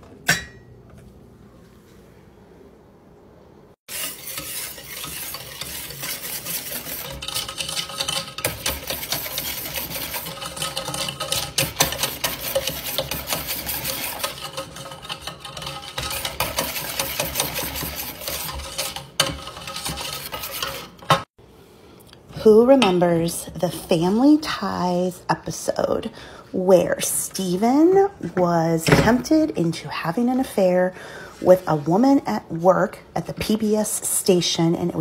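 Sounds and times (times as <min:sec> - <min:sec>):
whisk scraping metal saucepan: 0:03.9 - 0:21.3.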